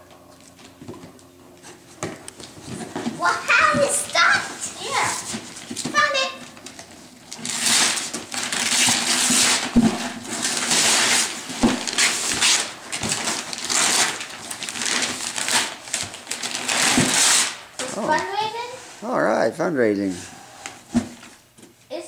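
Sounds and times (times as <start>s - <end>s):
wrapping paper ripping: 4.6s - 18.2s.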